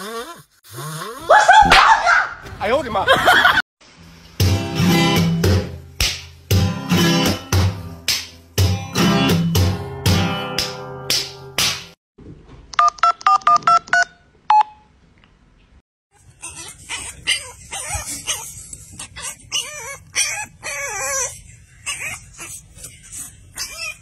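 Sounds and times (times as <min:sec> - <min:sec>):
puppy whining: 0:16.2 - 0:24.0.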